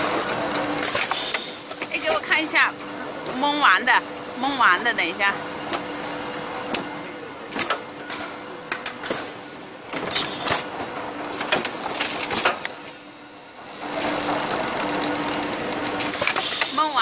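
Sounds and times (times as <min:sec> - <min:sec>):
machine clamping clicks and clacks: 0:07.5 - 0:09.2, 0:11.3 - 0:12.8, 0:14.3 - 0:16.8
machine hum: 0:09.8 - 0:17.0.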